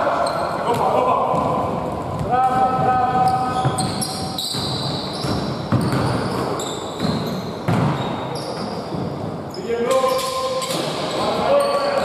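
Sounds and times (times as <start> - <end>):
sneakers squeaking: 0.0 - 12.0
basketball bouncing: 0.7 - 9.4.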